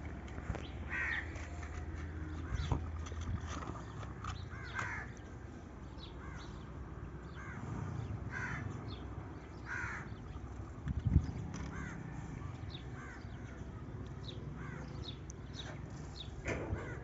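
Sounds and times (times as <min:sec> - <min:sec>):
crows cawing: 0:00.9 - 0:01.4, 0:04.5 - 0:05.2, 0:06.2 - 0:06.5, 0:07.4 - 0:07.6, 0:08.3 - 0:08.8, 0:09.6 - 0:10.1, 0:11.6 - 0:12.3, 0:13.0 - 0:13.6, 0:14.6 - 0:15.0, 0:16.7 - 0:17.0.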